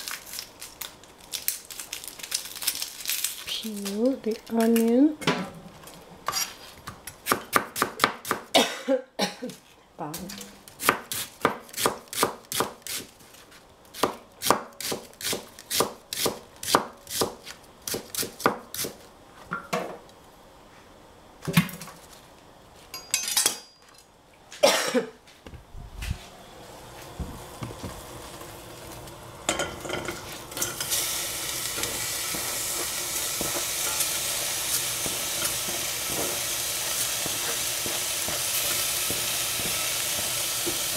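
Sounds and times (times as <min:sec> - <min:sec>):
knife slicing onion on board: 0:06.3 - 0:08.5, 0:10.3 - 0:13.1, 0:13.9 - 0:19.0
food sizzling in a pan: 0:27.1 - 0:40.9.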